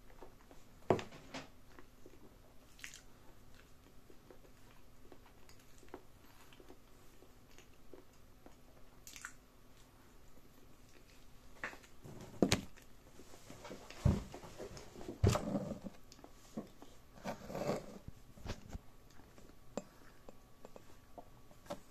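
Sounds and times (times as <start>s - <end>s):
person chewing: 1.8s - 9.9s, 17.2s - 21.8s.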